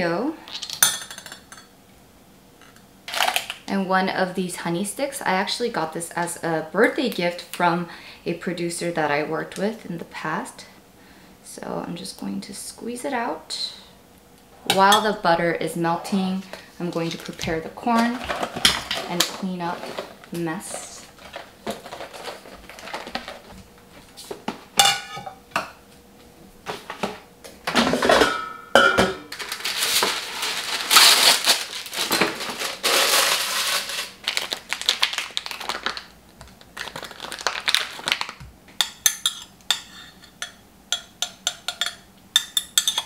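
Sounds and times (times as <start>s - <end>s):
plastic crinkling and rustling: 17.0s - 24.5s, 29.3s - 38.5s
tongs clinking against glass: 38.8s - 43.0s.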